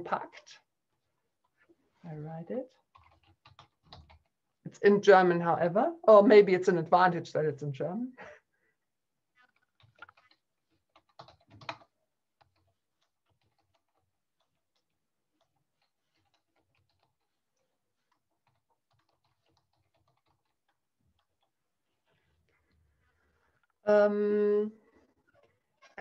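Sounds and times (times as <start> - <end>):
typing on computer keyboard: 2.8 - 4.3, 9.4 - 21.5.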